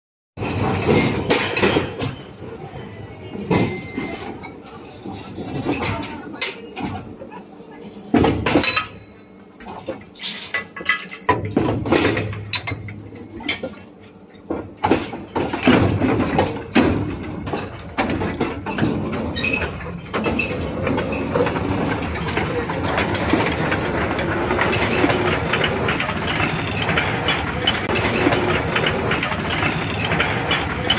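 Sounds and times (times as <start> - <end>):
mine cars rolling on rails: 14.5 - 30.9.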